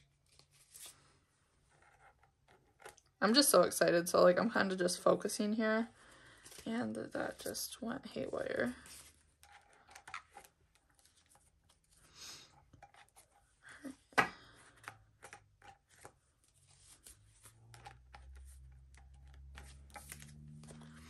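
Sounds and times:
plastic pages clicking and rustling: 8.7 - 12.0, 14.7 - 21.0.

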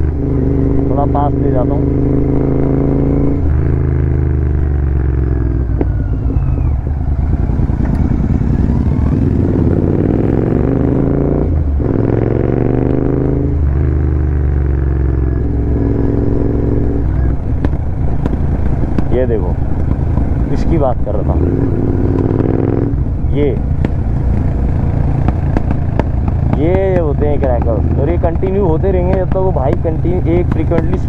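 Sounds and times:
motorcycle engine revving: 0.0 - 31.0.

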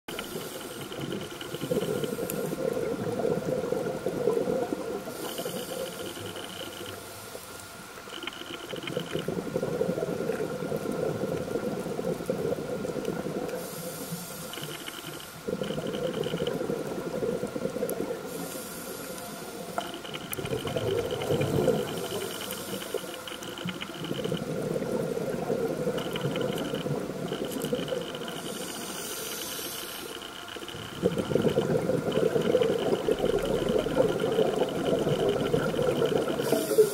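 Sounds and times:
exhaled bubbles underwater: 0.1 - 7.0, 8.7 - 14.1, 15.4 - 29.2, 30.6 - 36.9
regulator hissing inhalations: 13.6 - 15.4, 18.3 - 19.6, 28.4 - 30.2, 36.4 - 36.9.

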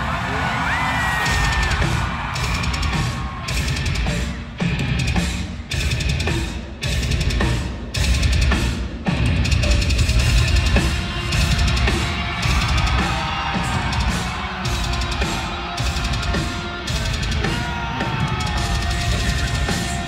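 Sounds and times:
live heavy metal band: 0.0 - 20.0
bass drum and snare beat: 1.2 - 20.0.

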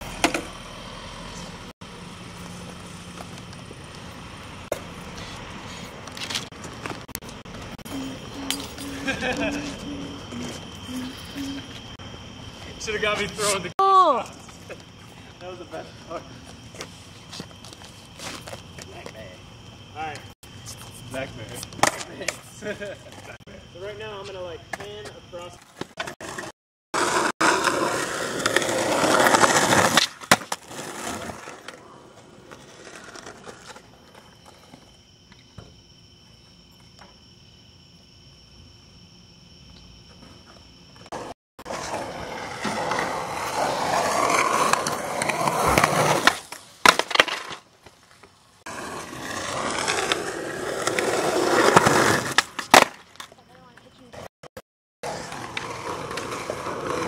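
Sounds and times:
skateboard clacking: 0.0 - 0.7, 27.0 - 34.4, 41.1 - 47.6, 48.7 - 54.2
skateboard wheels rolling on concrete: 0.0 - 54.3, 55.0 - 57.0.

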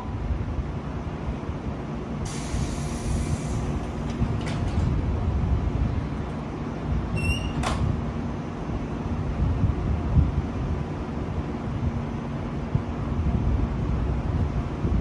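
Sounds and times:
train low hum and rumble: 0.0 - 15.0
hiss of released air: 2.2 - 3.9.

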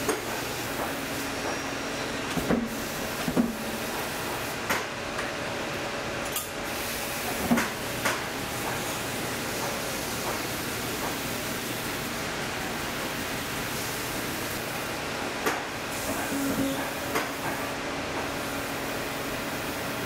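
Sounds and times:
steady shop hum: 0.0 - 20.0.

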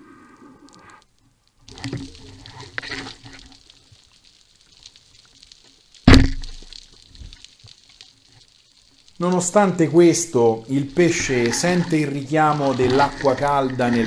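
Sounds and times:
underwater diver movement: 0.0 - 14.0
speargun firing underwater: 6.1 - 6.6.

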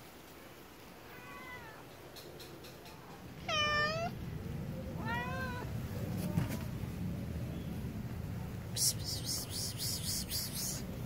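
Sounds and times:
cat meowing: 1.1 - 1.9, 3.4 - 4.2, 5.0 - 5.7.

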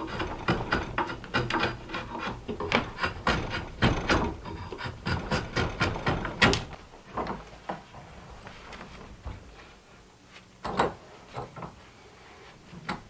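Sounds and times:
file rasping wood: 0.0 - 6.6
soft knocks and handling: 6.6 - 11.9.

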